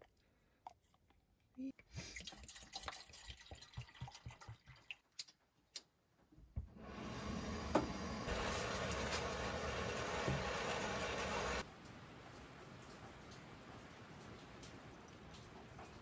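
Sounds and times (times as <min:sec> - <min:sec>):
water trickling into pot: 0:02.1 - 0:05.4.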